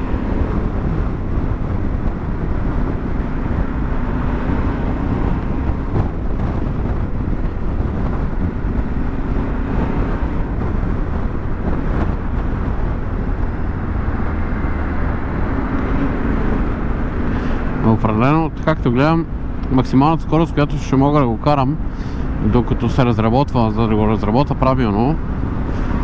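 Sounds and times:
motorcycle engine running: 0.0s - 17.9s
wind and road noise: 0.0s - 26.0s.

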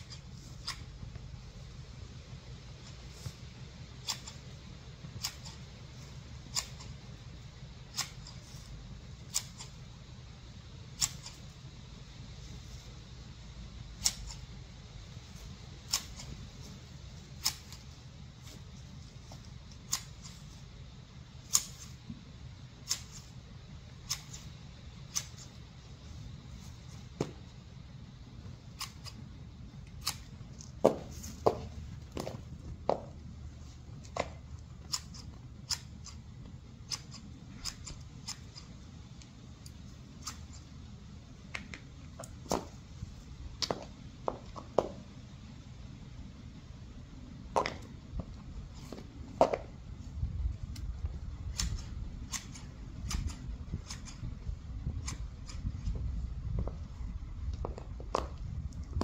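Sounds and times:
garden shears snipping twigs: 0.0s - 1.0s, 4.0s - 7.0s, 7.8s - 9.8s, 10.9s - 11.5s, 13.9s - 14.5s, 15.2s - 20.7s, 21.4s - 22.0s, 22.8s - 25.6s, 28.6s - 29.2s, 29.8s - 32.4s, 34.0s - 36.2s, 36.8s - 40.7s, 50.7s - 54.3s.

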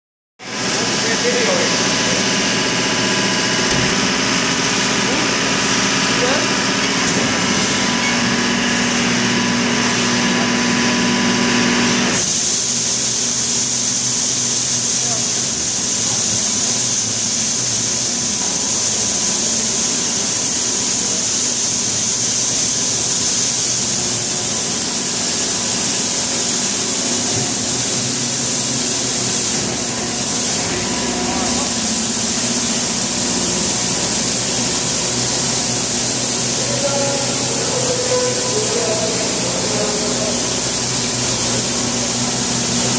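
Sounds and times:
hydraulic hiss: 12.1s - 42.9s
rotary broom sweeping concrete: 12.2s - 42.9s.

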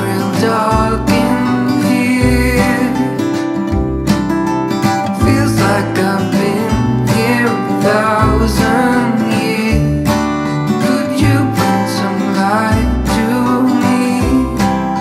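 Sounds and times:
song with strummed acoustic guitar: 0.0s - 15.0s.

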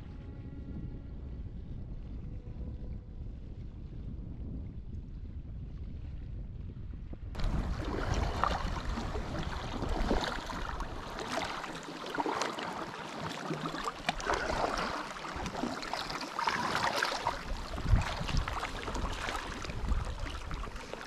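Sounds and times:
wind rumble on microphone: 0.0s - 21.0s
paddle strokes in water: 7.4s - 21.0s
water lapping against rocks: 7.4s - 21.0s.

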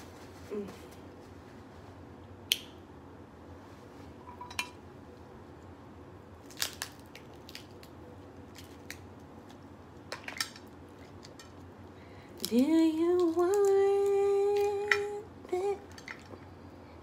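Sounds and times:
crab shell cracking: 6.4s - 11.5s.

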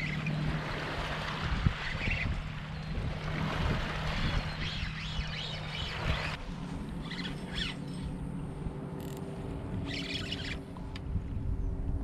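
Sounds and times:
water lapping against kayak hull: 0.0s - 7.7s
wind on microphone: 0.0s - 8.8s, 9.5s - 12.0s
steady low hum: 2.3s - 12.0s.

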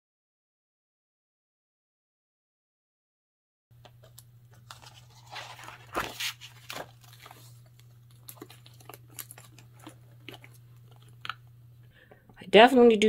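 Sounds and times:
paper and plastic crinkling: 4.0s - 11.5s.

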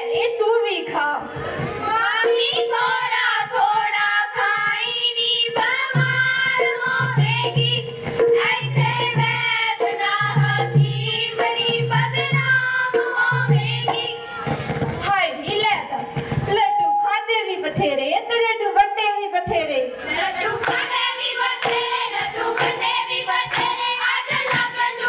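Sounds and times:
girls singing folk song: 1.6s - 14.6s, 20.0s - 25.0s
hand drum beat: 5.6s - 15.0s, 20.1s - 25.0s.

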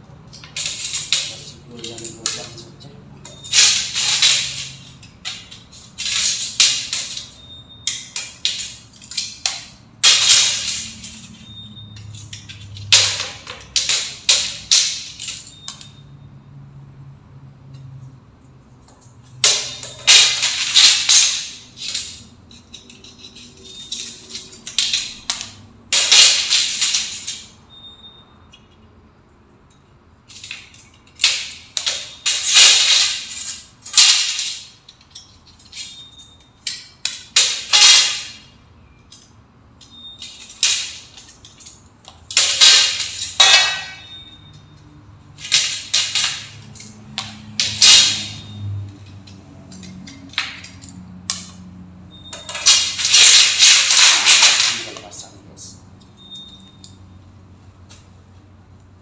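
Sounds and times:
metal channels scraping: 0.0s - 15.9s, 18.8s - 27.6s.

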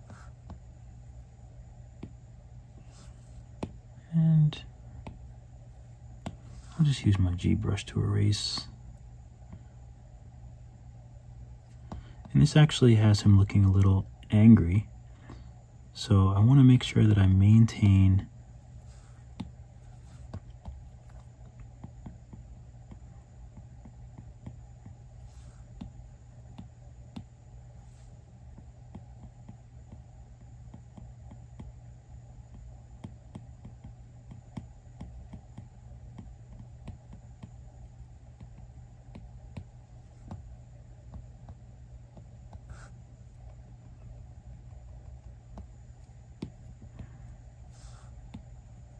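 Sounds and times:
steady low hum: 0.0s - 48.9s.

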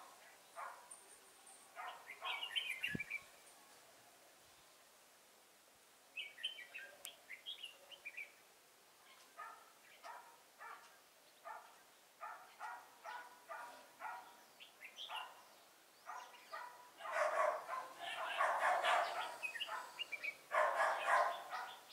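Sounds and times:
bird chattering song: 1.8s - 3.2s, 16.1s - 21.9s.

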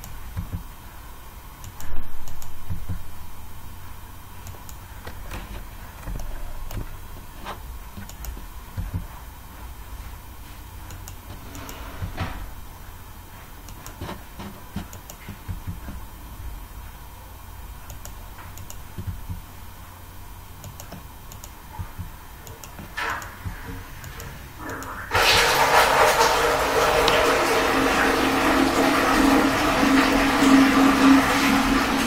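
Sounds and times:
steady low hum: 0.0s - 32.0s
mouse and keyboard clicks: 8.0s - 9.1s.

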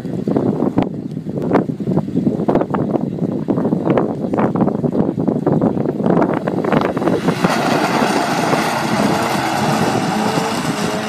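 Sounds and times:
wind buffeting microphone: 0.0s - 11.0s
car engine accelerating: 6.4s - 11.0s.

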